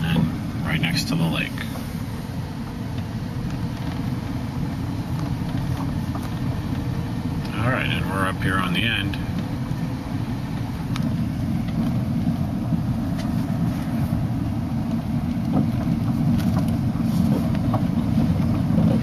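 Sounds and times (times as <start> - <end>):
car engine and tyres rumbling: 0.0 - 19.0.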